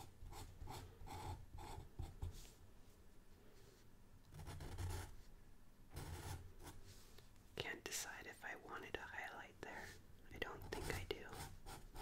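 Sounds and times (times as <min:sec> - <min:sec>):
marker scratching on paper: 0:04.3 - 0:05.3, 0:06.0 - 0:06.8.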